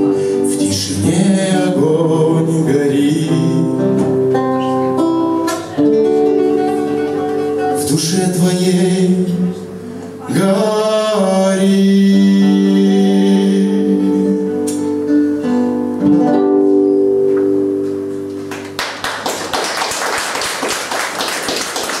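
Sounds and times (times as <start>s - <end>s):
classical guitar chords: 0.0s - 19.0s
audience applause: 18.5s - 22.0s.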